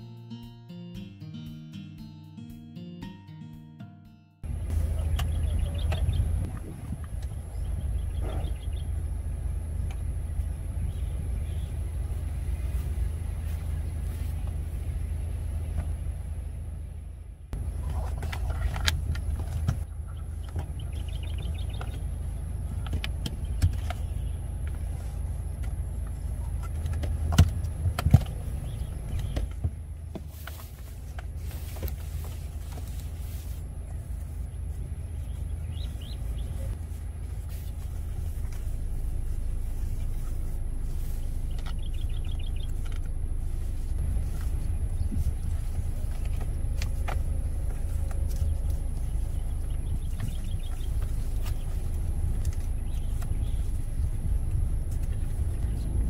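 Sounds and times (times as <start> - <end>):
steady low rumble: 4.4 - 56.0
foam mats being handled: 21.4 - 55.9.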